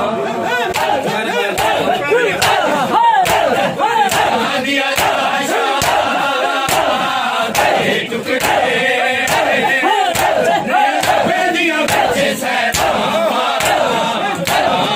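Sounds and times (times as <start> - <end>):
crowd of men chanting: 0.0 - 14.9
hands slapping bare chests: 0.7 - 1.0, 1.6 - 7.8, 8.4 - 8.7, 9.3 - 11.3, 11.9 - 13.0, 13.6 - 14.8.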